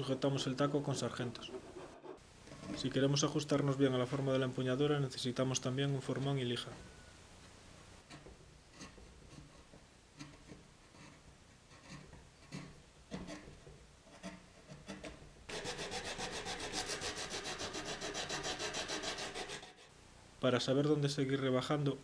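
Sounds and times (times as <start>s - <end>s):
scraping strokes on wood: 1.3s - 2.9s, 8.0s - 19.9s
fast rubbing strokes on wood: 15.5s - 19.9s.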